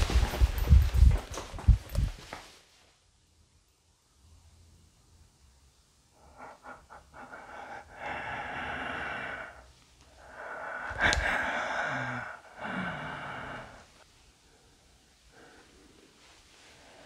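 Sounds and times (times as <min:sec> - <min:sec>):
rustles: 0:00.0 - 0:03.0
person breathing heavily: 0:06.1 - 0:17.0.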